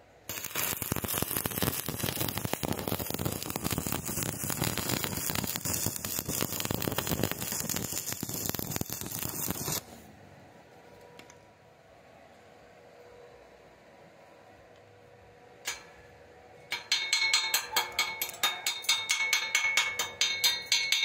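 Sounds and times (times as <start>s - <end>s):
welding arc crackling: 0.3s - 9.9s.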